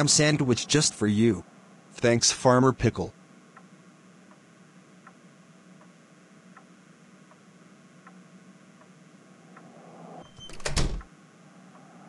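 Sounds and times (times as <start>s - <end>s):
low steady hiss: 0.0s - 12.0s
faint regular ticking: 3.1s - 9.7s.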